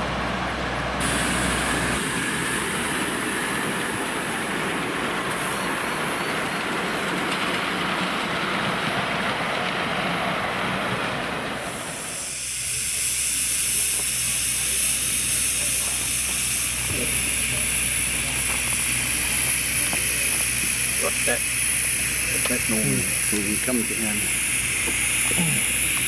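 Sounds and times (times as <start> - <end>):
steam hissing: 1.0 - 26.0
wagon wheels clacking on rails: 2.0 - 11.7.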